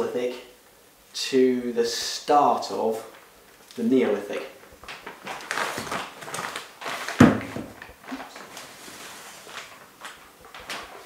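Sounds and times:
plastic film rustling: 2.9 - 11.0.

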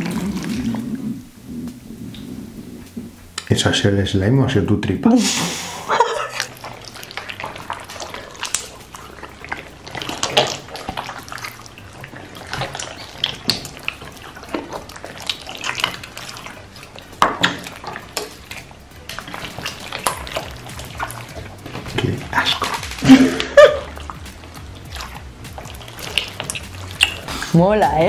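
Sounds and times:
slime squelching and popping: 6.2 - 28.0.

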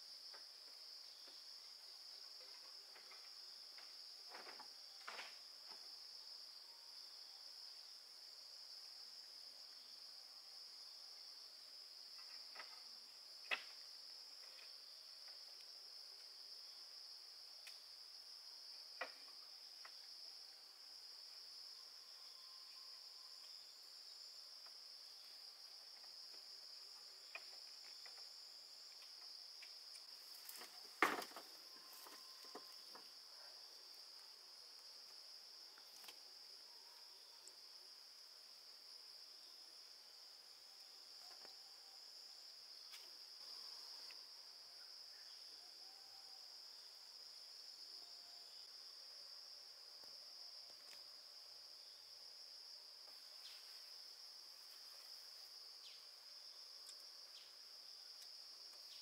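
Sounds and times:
high-pitched insect chorus: 0.0 - 59.0.

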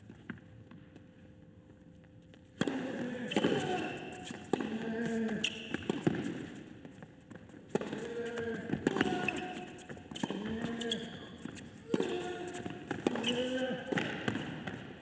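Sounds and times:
shoes squeaking on court: 2.3 - 14.9
racket striking ball: 11.9 - 14.8.

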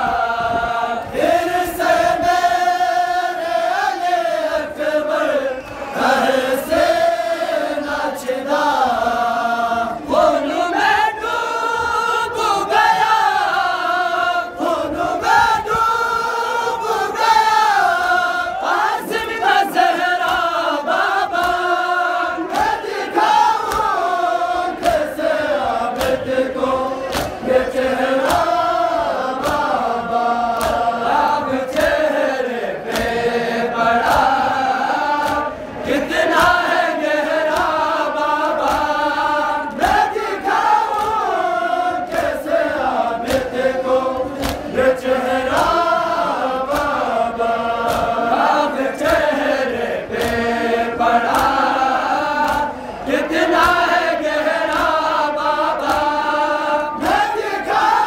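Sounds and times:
group chanting a lament: 0.0 - 58.0
chest-beating slaps: 20.2 - 21.8, 22.5 - 25.2, 25.9 - 32.1, 32.8 - 42.5, 43.2 - 56.3, 56.9 - 58.0.

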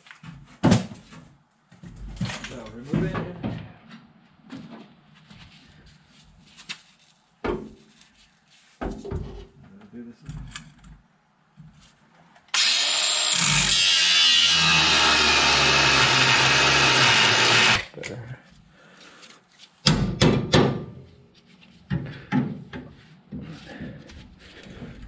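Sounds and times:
angle grinder cutting steel: 12.5 - 17.9.

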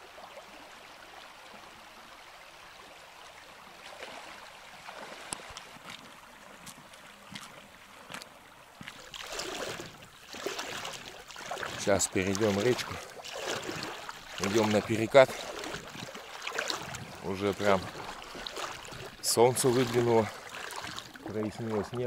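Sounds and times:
river running over stones: 0.0 - 22.0.

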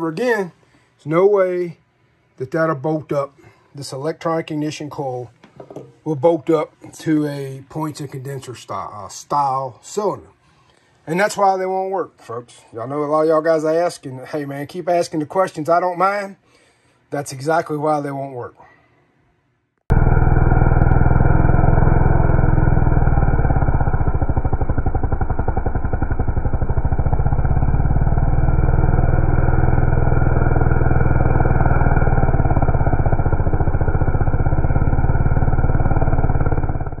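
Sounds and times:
chainsaw cutting wood: 19.9 - 37.0.

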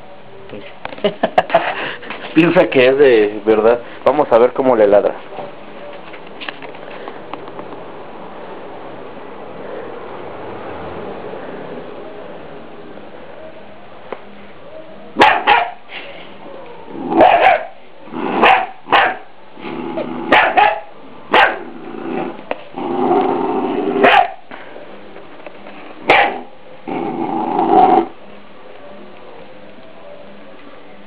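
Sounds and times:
puppy barking: 15.2 - 15.9, 17.1 - 19.3, 20.3 - 21.7, 24.0 - 24.5, 26.0 - 26.5
puppy growling: 16.5 - 18.7, 19.6 - 20.6, 21.4 - 24.4, 26.3 - 28.2.

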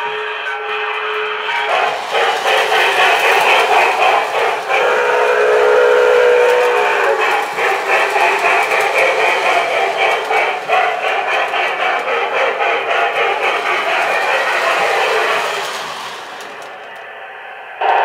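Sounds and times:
model train engine running: 0.0 - 18.0
electronic steam whistle blasts: 4.8 - 7.3.

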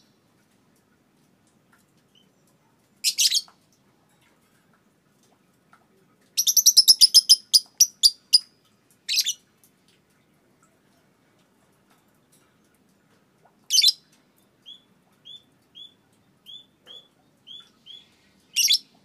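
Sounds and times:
lovebird calling: 9.1 - 9.4, 14.6 - 19.0.

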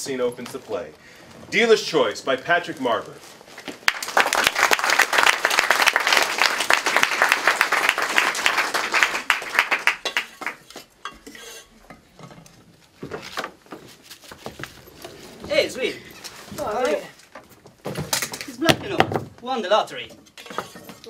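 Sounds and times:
audience applauding: 3.8 - 10.7
soft knocks and shuffles: 12.0 - 17.8.

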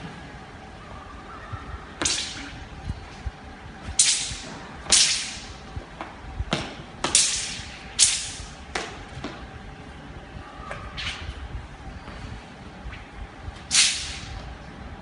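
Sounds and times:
weapon swishing through air: 13.6 - 14.4.

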